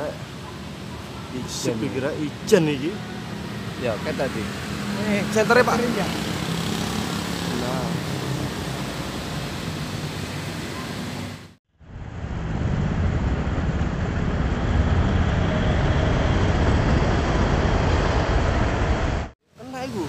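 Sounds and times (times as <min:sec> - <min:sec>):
motorbikes and cars passing: 0:00.0 - 0:20.0.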